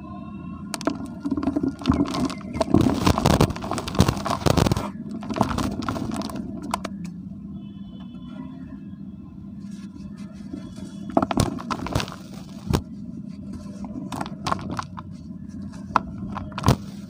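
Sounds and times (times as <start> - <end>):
hands crushing dry dirt: 0.8 - 7.0, 9.8 - 17.0.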